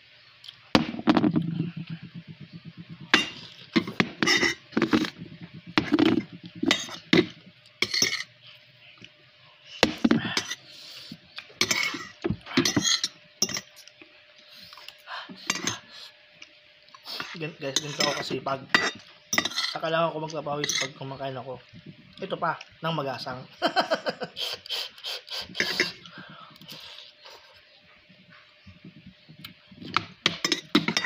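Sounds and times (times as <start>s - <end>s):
cutlery clinking against ceramic bowl: 2.2s - 5.2s, 5.8s - 8.3s, 11.6s - 13.7s, 15.5s - 15.8s, 17.2s - 19.8s, 20.6s - 21.0s, 30.0s - 31.0s.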